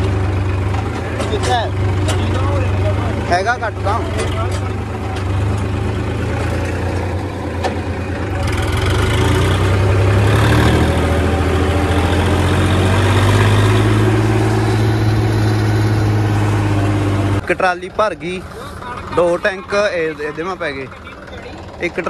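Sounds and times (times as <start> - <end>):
tractor diesel engine running: 0.0 - 22.0.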